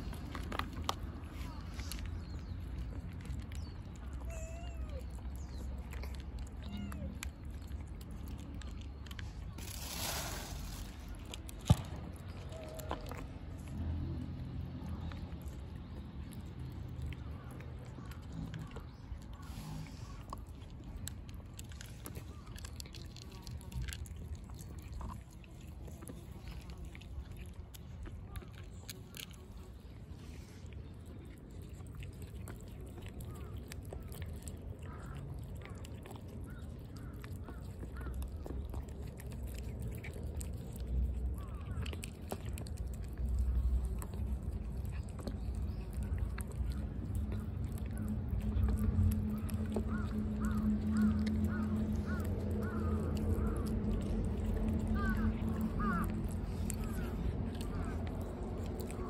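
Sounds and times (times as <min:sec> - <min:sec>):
cats crunching dry kibble: 0:00.0 - 0:59.0
low background rumble: 0:00.0 - 0:59.0
birds chirping: 0:43.4 - 0:59.0.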